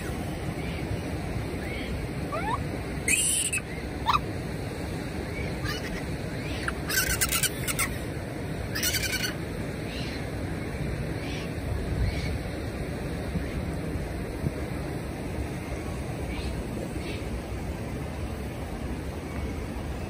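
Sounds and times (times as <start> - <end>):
flowing water rushing: 0.0 - 20.0
monkey coo calls: 1.7 - 4.3, 5.6 - 7.9, 8.8 - 9.3
monkey high-pitched squeals: 1.7 - 4.3, 5.6 - 8.0, 8.7 - 9.4.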